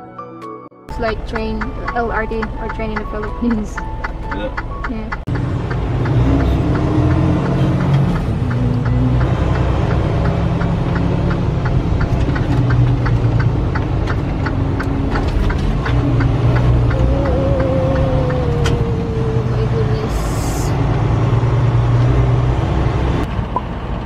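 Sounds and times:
engine and road rumble in cab: 0:00.9 - 0:24.0
faint regular ticking: 0:01.0 - 0:18.8.

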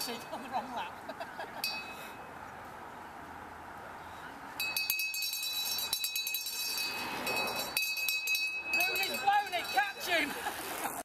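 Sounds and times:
rapid metallic ringing and clinking: 0:04.6 - 0:10.2.

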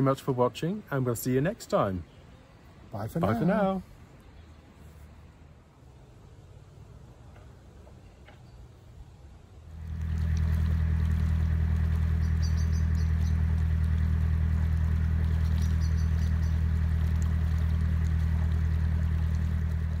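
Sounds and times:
boat diesel engine running: 0:09.7 - 0:20.0.

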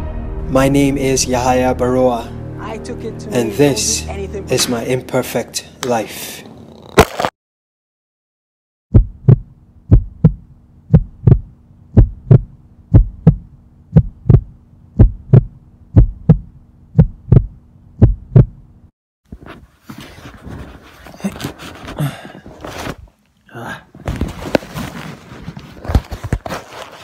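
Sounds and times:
heartbeat thumps: 0:08.9 - 0:18.6
rustling: 0:19.3 - 0:23.2, 0:24.0 - 0:27.0.

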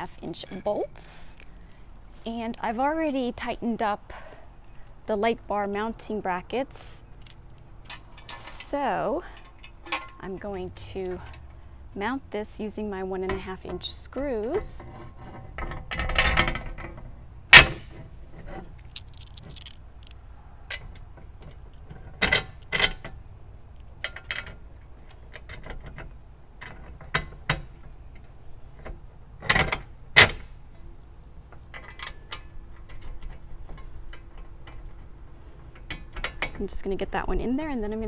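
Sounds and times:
metal screws clinking on metal: 0:00.4 - 0:01.6, 0:18.8 - 0:20.2.

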